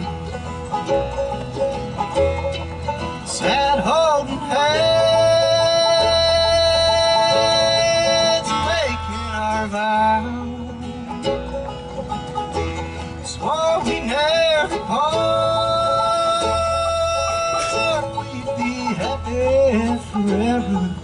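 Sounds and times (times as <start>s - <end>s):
acoustic guitar: 0.0s - 21.0s
banjo: 0.0s - 21.0s
mandolin: 0.0s - 21.0s
upright bass: 0.0s - 21.0s
man singing lead: 3.2s - 11.6s, 13.2s - 21.0s.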